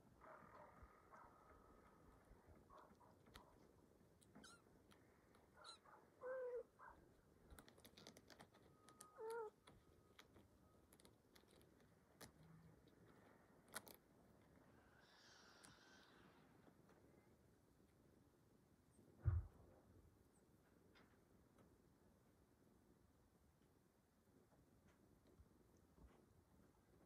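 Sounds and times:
kittens mewing: 5.6 - 6.7.

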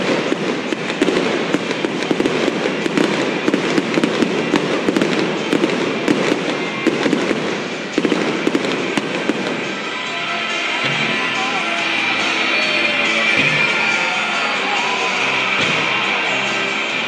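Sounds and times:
fireworks bangs and crackling: 0.0 - 17.0.

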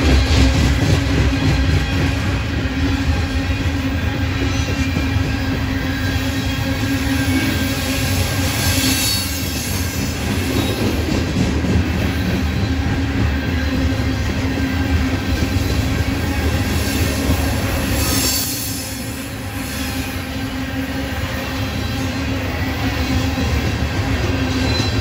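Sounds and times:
freight train wheels rumbling on rail: 0.0 - 25.0
wheels squealing: 21.4 - 25.0.

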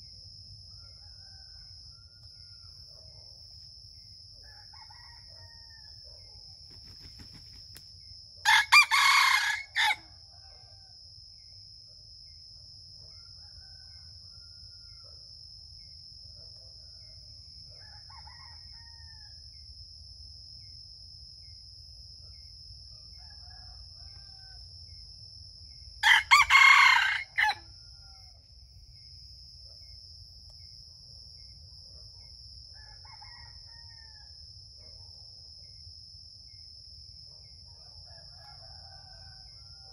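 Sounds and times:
high insect drone: 0.0 - 34.8
rooster crowing: 4.4 - 6.1, 8.4 - 10.9, 17.7 - 19.4, 26.0 - 28.4, 32.8 - 34.3, 38.0 - 39.9.

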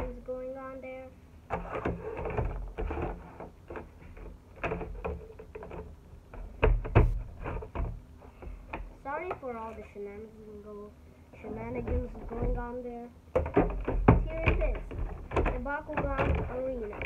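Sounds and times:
plastic parts clicking and knocking: 1.5 - 9.4, 11.7 - 12.7, 13.3 - 17.0.

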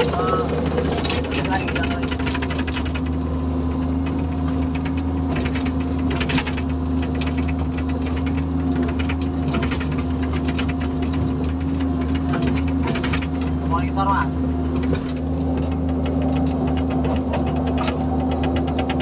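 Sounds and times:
excavator diesel engine running: 0.0 - 19.0
fast mechanical ticking and rattle: 0.0 - 19.0.

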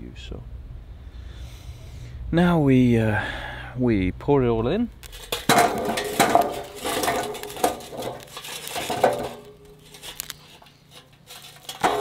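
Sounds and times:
charcoal clattering into metal barbecue: 5.0 - 12.0.

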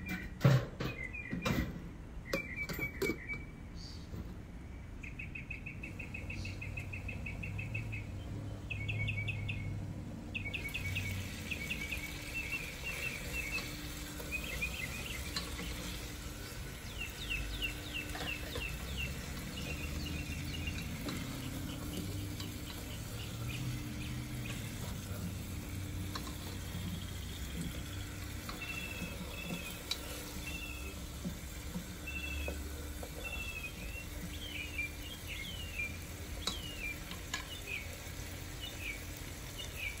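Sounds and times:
high chirps and trills: 10.4 - 40.0
potatoes sizzling in a pot: 10.5 - 40.0.

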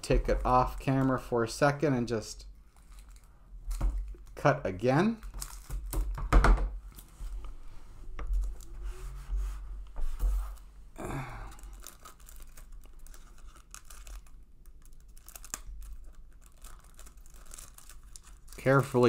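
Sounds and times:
plastic wrapper crinkling and tearing: 2.6 - 4.4, 5.0 - 6.2, 11.0 - 19.0.

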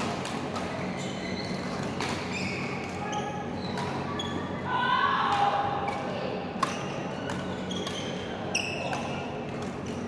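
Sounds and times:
rackets hitting shuttlecocks: 5.3 - 10.0.

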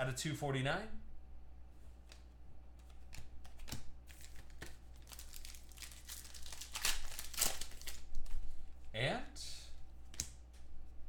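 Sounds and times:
foil wrapper crinkling and tearing: 4.1 - 8.4.

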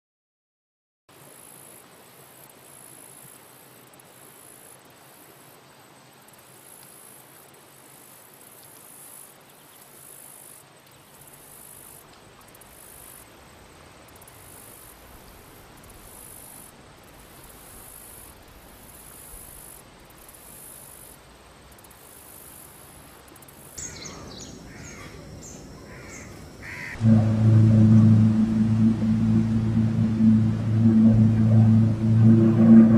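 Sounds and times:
insects chirring: 6.2 - 27.0
low hum: 24.5 - 32.9.

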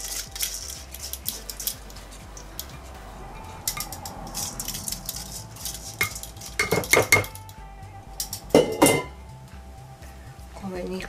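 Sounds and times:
strainer clanking on pot rim: 8.5 - 9.1.

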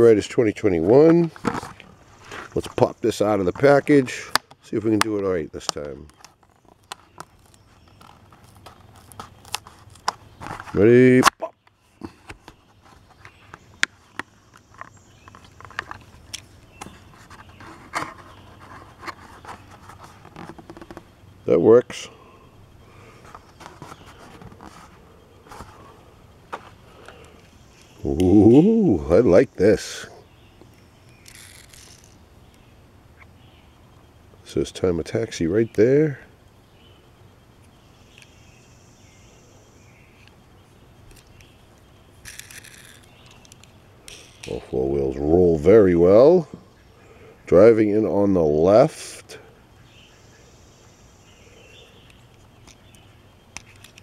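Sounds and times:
low steady hum: 0.0 - 54.0
plastic blister pack crinkling: 42.2 - 44.6.

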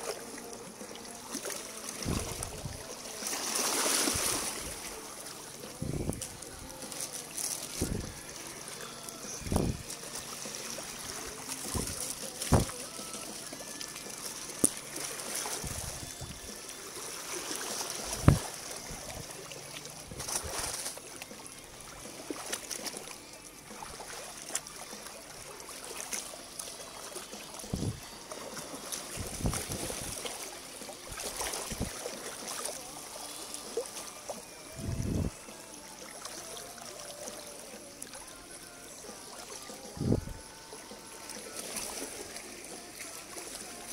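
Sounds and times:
stream water trickling over rocks: 0.0 - 43.9.

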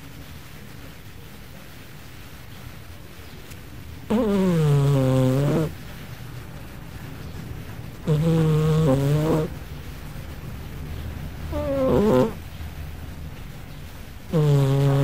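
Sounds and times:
cat snoring: 4.1 - 5.7, 8.0 - 9.6, 11.5 - 12.4, 14.3 - 15.0.

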